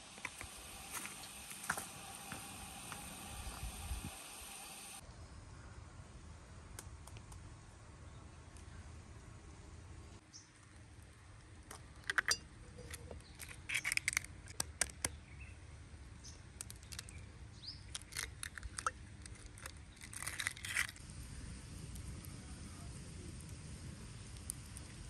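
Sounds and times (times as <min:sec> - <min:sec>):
glass jar and eggshell clicking: 0:11.7 - 0:14.3, 0:17.9 - 0:21.0
egg broken into jar: 0:17.9 - 0:21.0.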